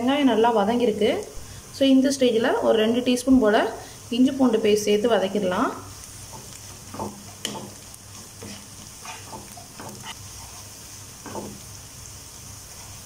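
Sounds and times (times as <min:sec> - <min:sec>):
onions sizzling in oil: 0:00.0 - 0:13.0
plastic spatula scraping pan: 0:08.2 - 0:11.6.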